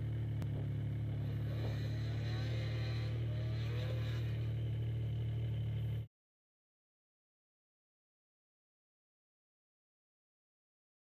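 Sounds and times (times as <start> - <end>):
snowmobile engine droning: 0.0 - 6.1.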